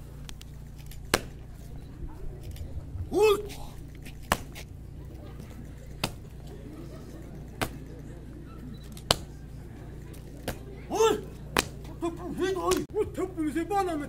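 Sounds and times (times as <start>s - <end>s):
faint crowd chatter: 0.0s - 14.0s
sharp slaps: 1.0s - 1.4s, 4.1s - 4.7s, 6.0s - 6.3s, 7.6s - 7.9s, 9.0s - 9.3s, 10.4s - 10.7s, 11.5s - 11.9s, 12.7s - 12.9s
person shouting: 3.1s - 3.7s, 10.9s - 11.3s.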